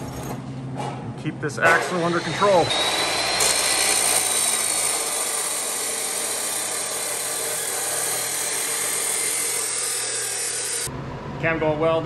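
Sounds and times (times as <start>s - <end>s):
chop saw grinding through steel: 1.7s - 10.9s.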